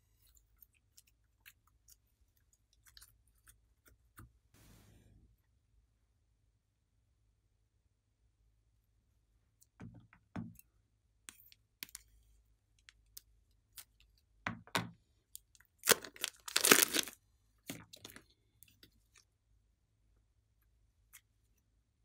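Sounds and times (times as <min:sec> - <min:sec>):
plastic bag crinkling: 0:15.8 - 0:17.2
sticky slime crackles: 0:15.8 - 0:18.2.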